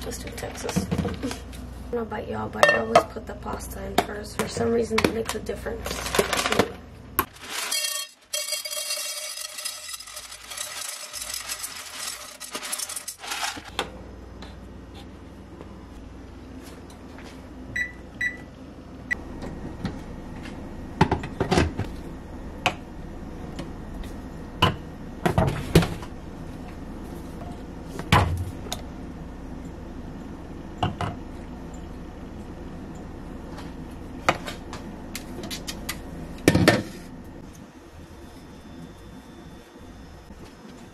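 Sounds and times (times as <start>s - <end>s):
electronic appliance beeps: 17.7s - 19.7s.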